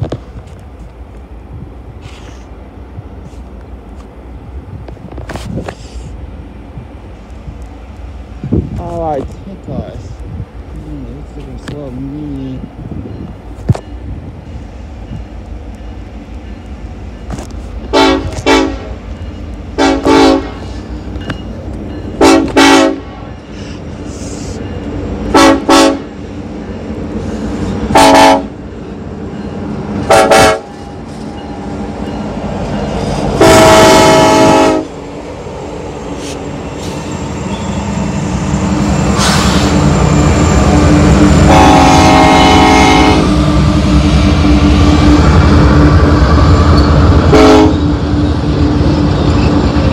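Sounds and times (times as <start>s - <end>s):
locomotive engines and wheels rumbling: 0.0s - 49.9s
locomotive horn: 17.9s - 19.0s, 19.8s - 20.7s, 22.2s - 23.3s, 25.3s - 26.2s, 27.9s - 28.6s, 30.0s - 30.9s, 33.4s - 34.9s, 41.3s - 43.4s, 47.2s - 47.9s.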